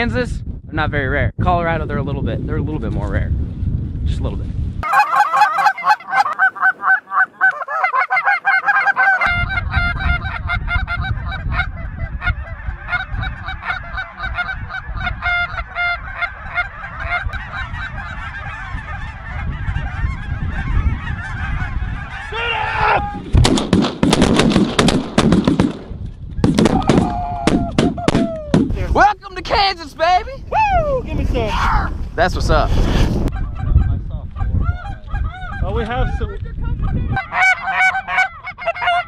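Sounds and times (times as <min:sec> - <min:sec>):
geese honking: 0:04.8 - 0:23.0, 0:36.8 - 0:39.0
shotgun blasts: 0:23.3 - 0:28.8.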